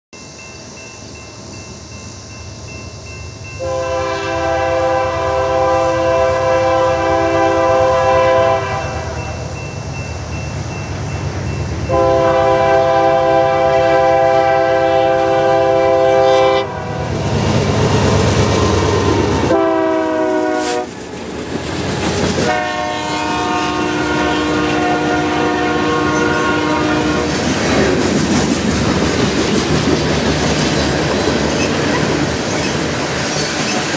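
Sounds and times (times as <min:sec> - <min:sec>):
train rumble: 0:00.2 - 0:33.9
locomotive air horn blasts: 0:03.6 - 0:09.3, 0:11.9 - 0:17.1, 0:19.4 - 0:20.9, 0:22.4 - 0:27.4.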